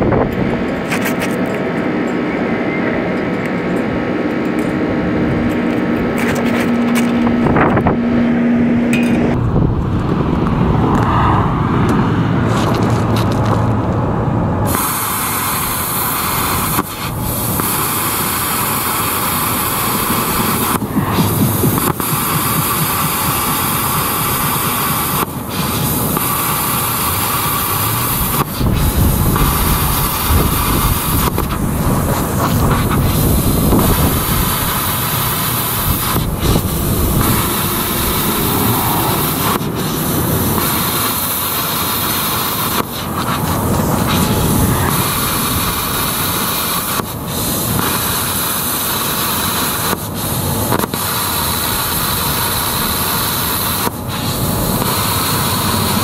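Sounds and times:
plasma cutter hissing: 14.6 - 56.0.

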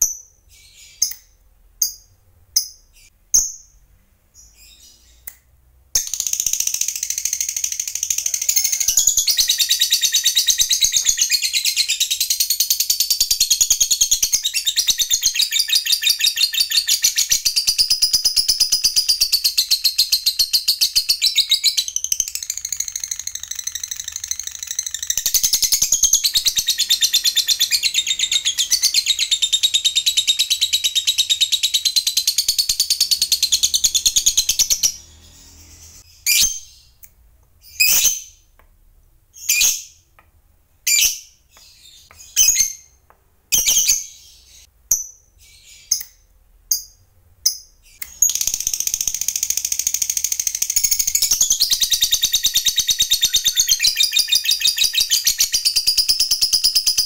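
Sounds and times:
bird chattering trill: 6.0 - 12.4.

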